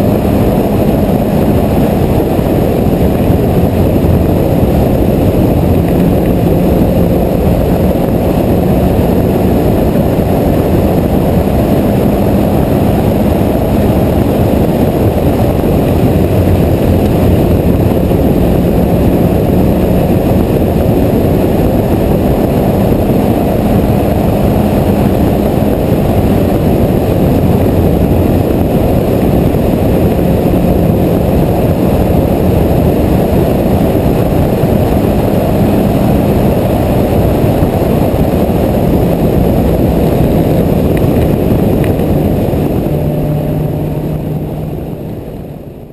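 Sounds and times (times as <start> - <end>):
race car engine running hard: 0.0 - 45.9
road noise: 0.0 - 45.9
wind noise: 0.0 - 45.9.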